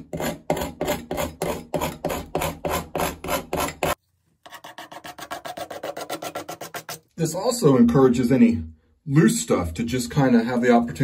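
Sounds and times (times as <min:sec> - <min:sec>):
putty knife scraping wall: 0:00.0 - 0:07.1.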